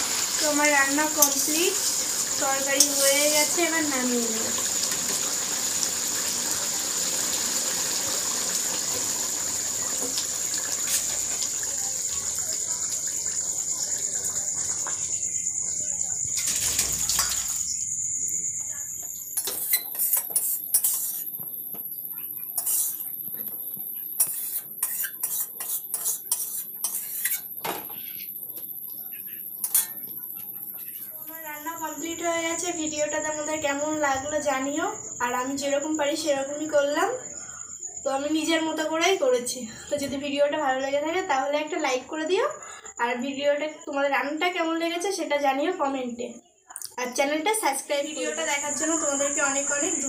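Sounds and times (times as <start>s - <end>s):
curry cooking hiss: 0.0s - 40.0s, 46.8s - 50.0s
spoon scraping pan: 0.9s - 3.6s, 19.3s - 28.6s, 29.2s - 31.1s
metal spoon clinking on metal: 19.4s - 21.3s, 29.6s - 30.1s.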